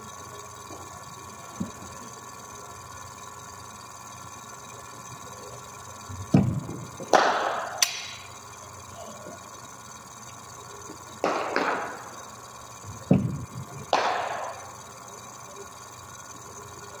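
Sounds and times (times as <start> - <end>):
bowling machine humming: 0.0 - 17.0
loud rushing rattle with crack: 10.5 - 14.9
heavy thump: 13.1 - 13.4.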